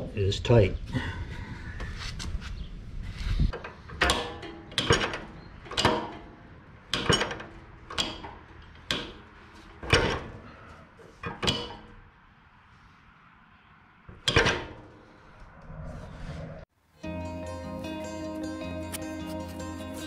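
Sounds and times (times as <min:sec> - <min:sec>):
metal parts clicking and clunking: 0:03.5 - 0:10.4.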